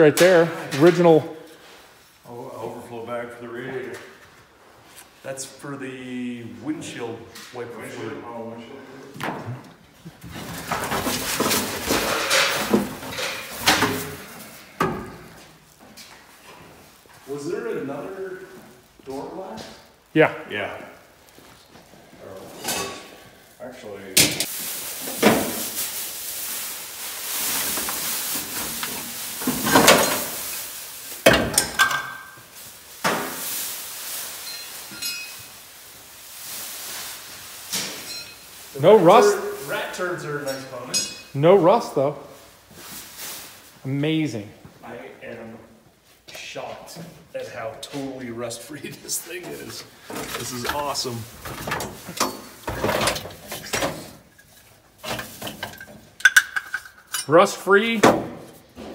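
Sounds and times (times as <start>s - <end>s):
rustling and scraping: 0.3s - 5.6s, 8.7s - 20.1s, 20.8s - 58.9s
plastic wrapping crinkling: 24.4s - 40.8s, 41.7s - 43.8s, 48.4s - 56.2s
car parts clunking down: 50.1s - 57.2s.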